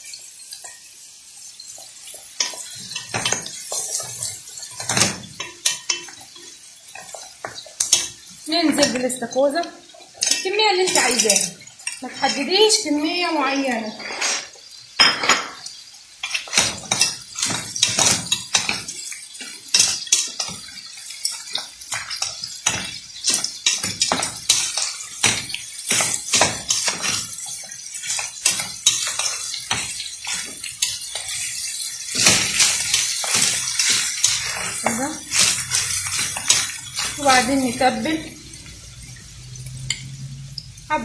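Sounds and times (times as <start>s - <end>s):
shells clattering in a metal pot: 10.2s - 12.1s.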